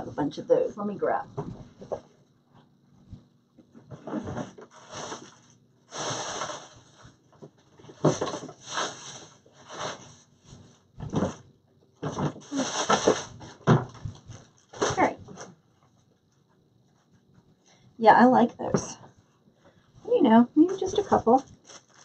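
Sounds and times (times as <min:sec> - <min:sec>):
rustling craft supplies: 0:03.8 - 0:11.4, 0:12.0 - 0:15.6, 0:20.6 - 0:22.0.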